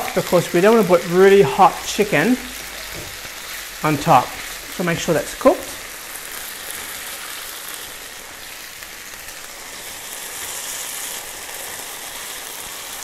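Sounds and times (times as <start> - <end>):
chicken sizzling in a frying pan: 0.0 - 13.0.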